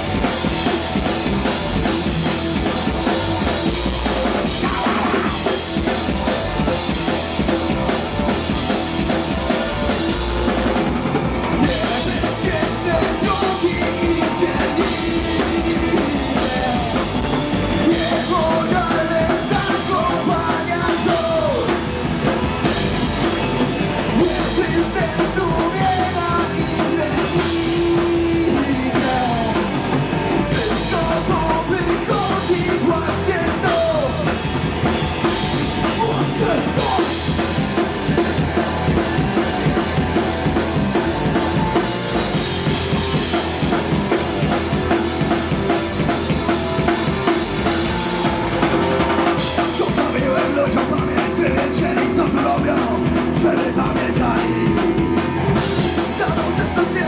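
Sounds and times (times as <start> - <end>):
bass guitar: 0.0 - 57.0
drum kit: 0.0 - 57.0
electric guitar: 0.0 - 57.0
person singing: 2.6 - 5.9, 11.6 - 21.9, 24.1 - 34.4, 35.8 - 37.5, 46.8 - 57.0.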